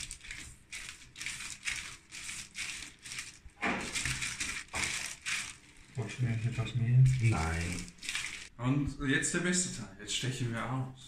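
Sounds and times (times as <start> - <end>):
rolling pin rustling on paper: 0.0 - 8.5.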